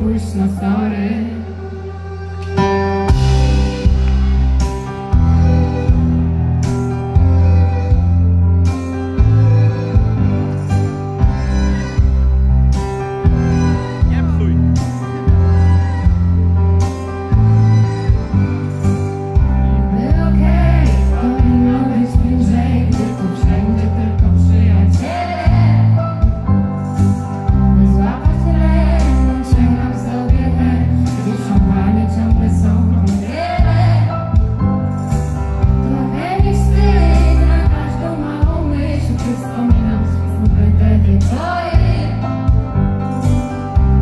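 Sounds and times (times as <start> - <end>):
woman singing into a microphone: 0.0 - 1.9, 19.8 - 26.2, 27.7 - 34.2, 35.8 - 42.4
deep bass notes: 0.0 - 44.0
live pop band: 0.0 - 44.0.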